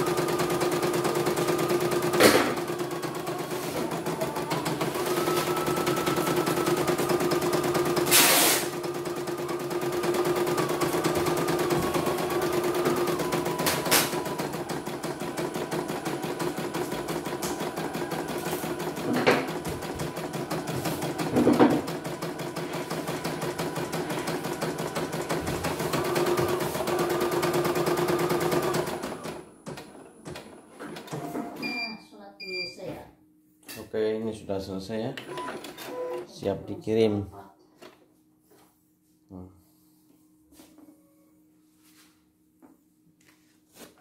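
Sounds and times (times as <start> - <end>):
embroidery machine stitching: 0.0 - 31.2.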